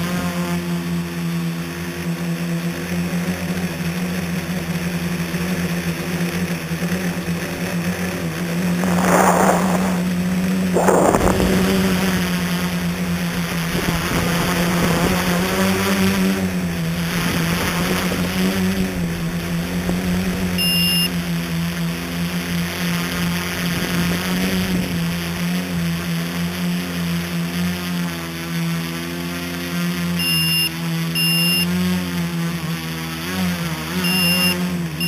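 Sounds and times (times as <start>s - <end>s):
drone motors and propellers humming: 8.4s - 25.6s
rushing air: 8.6s - 12.3s.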